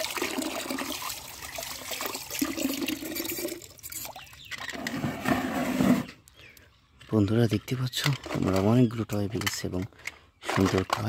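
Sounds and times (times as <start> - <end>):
water pouring into a tub: 0.0 - 4.2.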